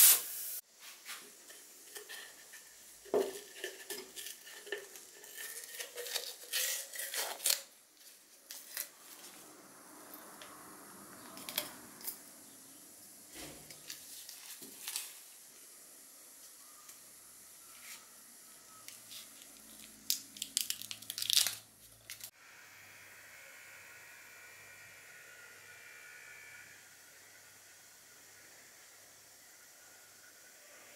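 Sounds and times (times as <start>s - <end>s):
masking tape peeling: 4.2s - 7.8s, 19.1s - 22.3s
faint steady hum: 21.7s - 30.9s.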